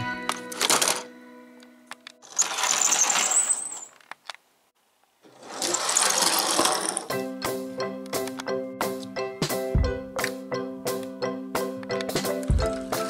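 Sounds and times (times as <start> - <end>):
background music: 0.0 - 2.4, 6.5 - 13.0
toy vehicle whirring and rattling: 2.2 - 4.2, 5.3 - 7.1.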